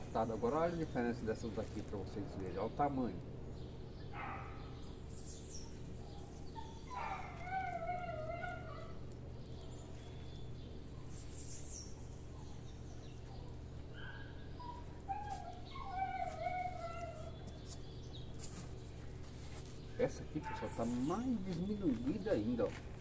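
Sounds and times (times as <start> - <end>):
steady low hum: 0.0 - 23.0
wavering animal calls: 4.0 - 18.1.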